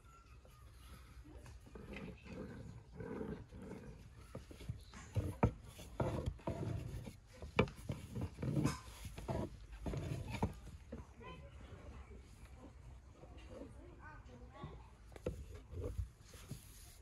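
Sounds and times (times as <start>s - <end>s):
rolling pin rolling dough: 0.0s - 11.4s, 14.7s - 17.0s.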